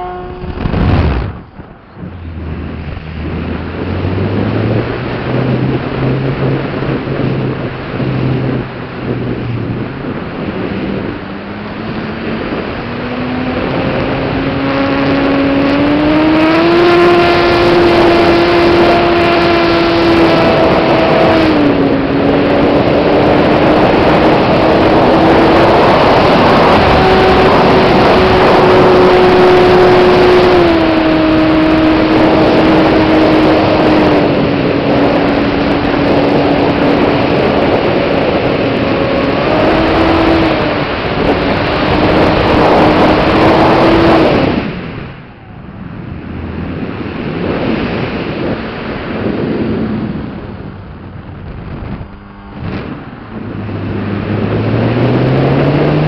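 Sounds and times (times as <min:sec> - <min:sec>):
wind on microphone: 0:00.0 - 0:56.0.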